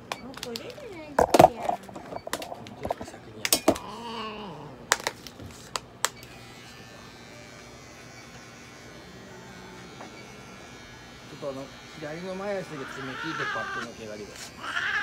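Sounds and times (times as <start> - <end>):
electric pet clipper humming: 6.0 - 15.0.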